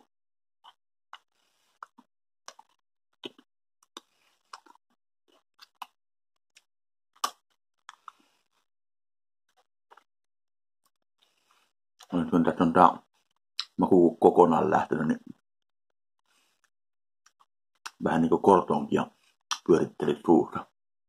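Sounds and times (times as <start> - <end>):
mouth chewing candy: 0.6 - 6.0, 6.6 - 8.7.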